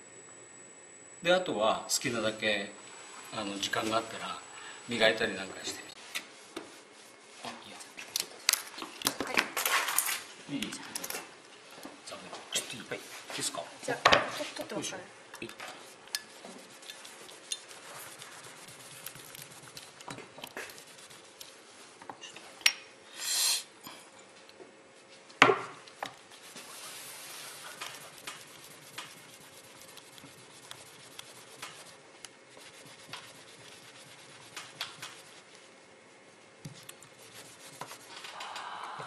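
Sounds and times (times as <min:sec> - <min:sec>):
sandpaper scraping metal: 0:16.3 - 0:19.9, 0:26.5 - 0:35.5, 0:37.2 - 0:38.2
short hiss: 0:23.1 - 0:23.7.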